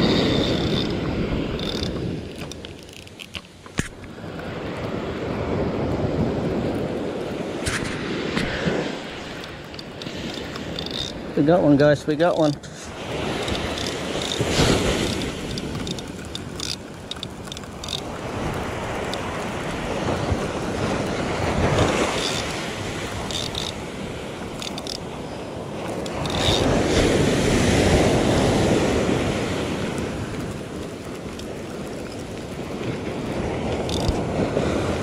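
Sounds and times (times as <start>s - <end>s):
ocean surf washing on sand: 0.0s - 2.2s, 4.0s - 35.0s
short clicks: 1.6s - 4.1s, 12.3s - 19.4s, 33.7s - 34.2s
wind buffeting microphone: 4.0s - 35.0s.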